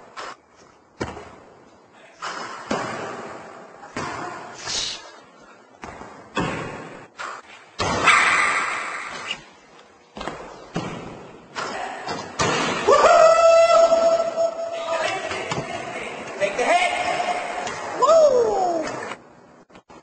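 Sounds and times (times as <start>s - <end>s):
basketball bouncing with echo: 1.0s - 1.5s, 2.2s - 4.4s, 5.8s - 7.1s, 10.2s - 12.9s.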